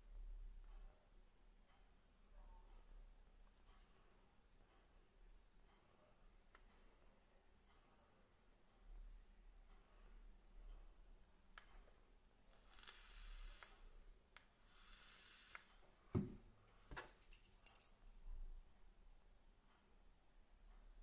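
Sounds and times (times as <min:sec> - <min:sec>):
soft hisses: 0:12.5 - 0:16.1
bottle set down on wooden desk: 0:16.1 - 0:17.2.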